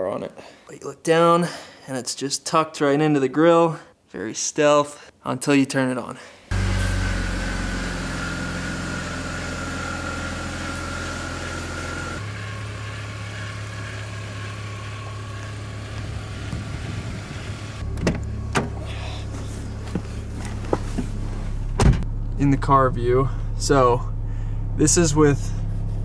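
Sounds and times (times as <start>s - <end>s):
car engine idling: 6.5s - 26.0s.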